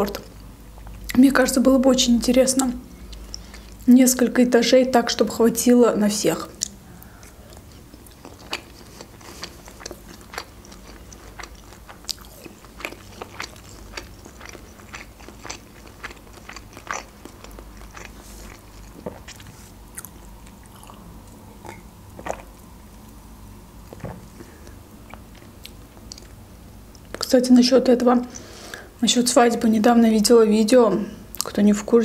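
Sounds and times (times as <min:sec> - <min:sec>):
close chewing with crunches: 0:06.6 - 0:23.1, 0:23.9 - 0:27.2.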